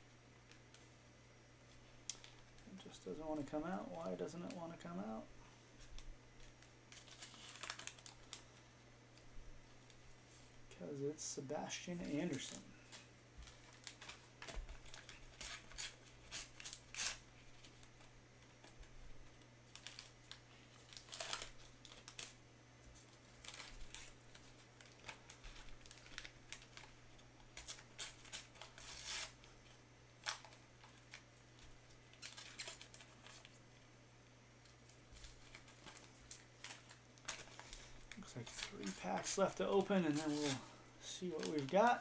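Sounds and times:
wrappers crinkling: 0:05.8 - 0:08.6, 0:11.7 - 0:33.6, 0:34.6 - 0:42.0.

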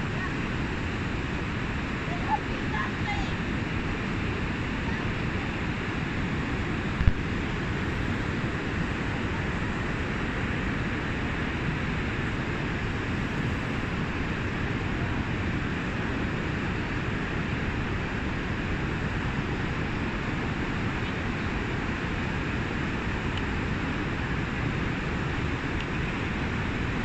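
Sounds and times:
waterfall and river rushing: 0:00.0 - 0:27.0.

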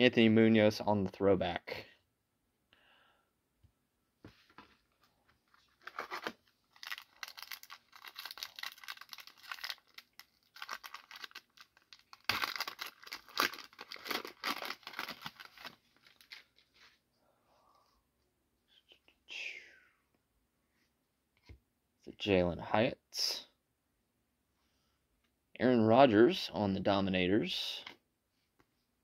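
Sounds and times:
wrapper tearing and crinkling: 0:05.7 - 0:16.5.

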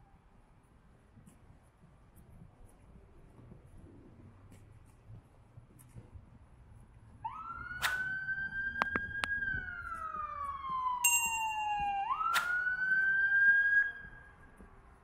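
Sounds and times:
emergency siren wailing: 0:07.2 - 0:14.6.

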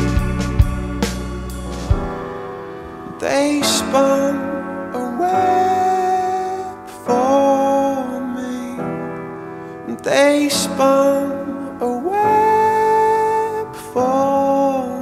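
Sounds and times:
slow song with keyboard: 0:00.0 - 0:15.0
person singing long notes: 0:09.9 - 0:15.0.

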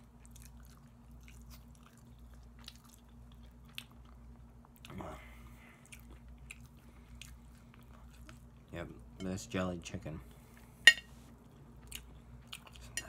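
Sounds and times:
person chewing: 0:00.0 - 0:08.7, 0:11.3 - 0:13.0
steady low hum: 0:00.0 - 0:13.0.

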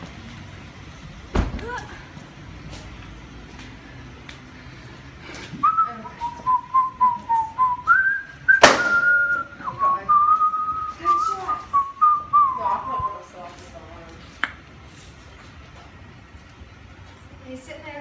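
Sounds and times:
person whistling a tune: 0:05.6 - 0:13.2
sharp knock: 0:08.6 - 0:09.0.

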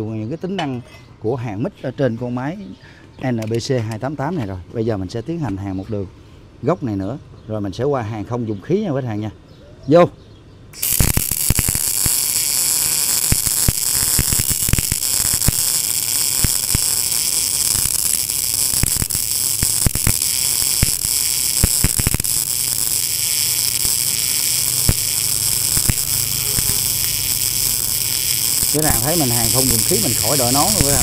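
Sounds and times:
welding arc hissing and crackling: 0:10.8 - 0:31.0.

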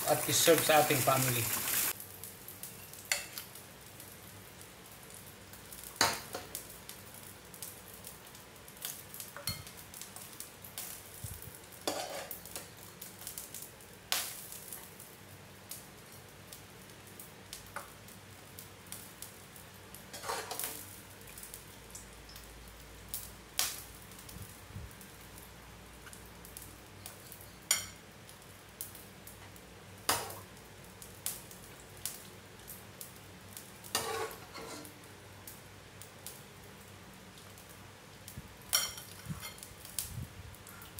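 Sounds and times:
faint steady hiss: 0:00.0 - 0:40.9
metal spoon clinking and scraping: 0:11.9 - 0:12.3, 0:20.2 - 0:20.7, 0:33.9 - 0:34.9.

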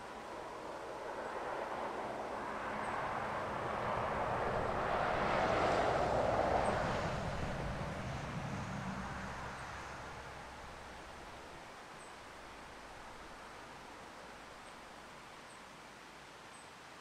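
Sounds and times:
distant vehicle passing: 0:01.1 - 0:11.7.

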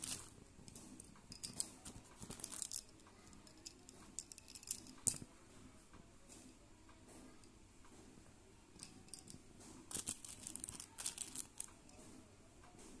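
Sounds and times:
plastic pencils clicking and rattling: 0:00.0 - 0:05.3, 0:08.8 - 0:12.0.

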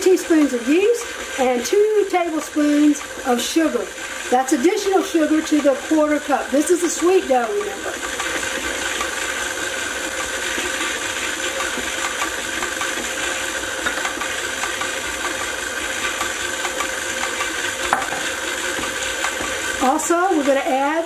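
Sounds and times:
machine hum and hiss: 0:00.0 - 0:20.7.

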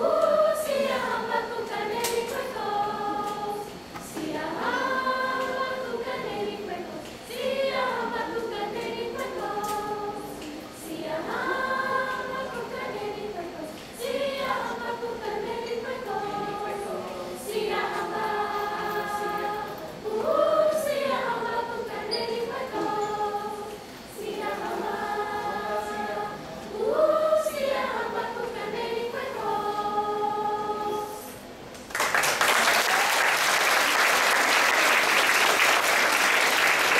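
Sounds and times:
children's chorus singing: 0:00.0 - 0:31.5
audience applause: 0:31.9 - 0:36.9.

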